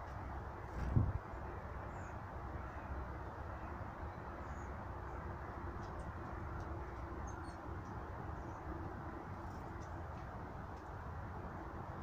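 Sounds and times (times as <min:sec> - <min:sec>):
low outdoor rumble: 0:00.0 - 0:12.0
faint high bird chirps: 0:07.2 - 0:07.7.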